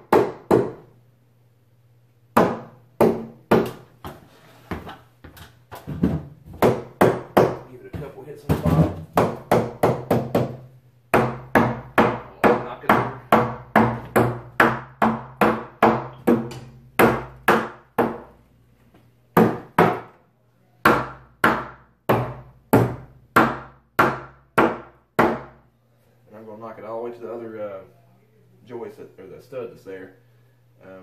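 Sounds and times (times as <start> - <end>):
hammer knocking wooden stud: 0.0 - 0.8, 2.4 - 3.8, 5.9 - 18.3, 19.4 - 20.1, 20.8 - 25.6.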